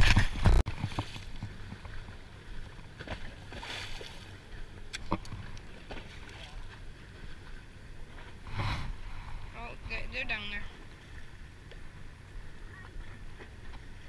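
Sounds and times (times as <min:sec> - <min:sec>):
wind on microphone: 0:00.0 - 0:02.0, 0:08.0 - 0:14.0.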